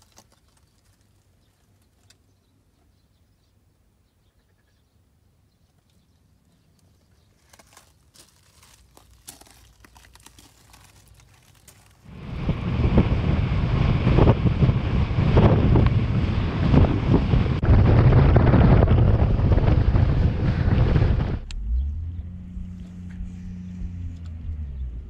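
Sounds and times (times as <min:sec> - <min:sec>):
boat running fast across water: 0:12.1 - 0:21.4
wind buffeting the microphone: 0:12.1 - 0:22.0.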